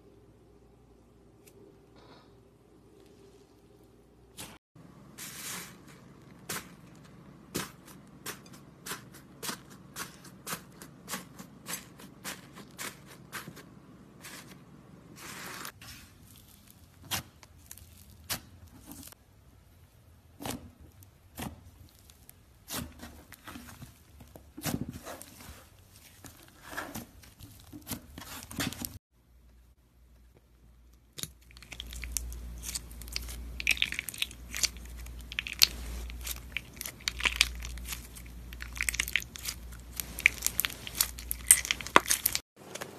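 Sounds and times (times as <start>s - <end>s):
slime tearing and crackling stretch: 31.2s - 42.4s.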